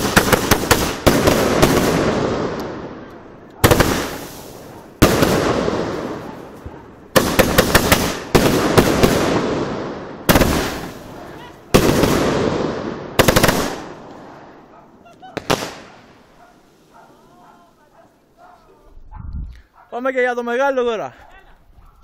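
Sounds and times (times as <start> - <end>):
fireworks bursting: 0.0 - 17.4.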